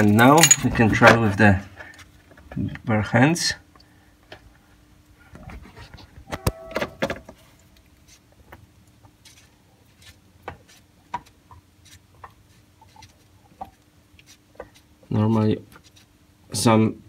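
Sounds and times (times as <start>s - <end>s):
sharp knocks and clinks: 0.0s - 0.9s
faint clicks and scratching: 7.3s - 16.1s.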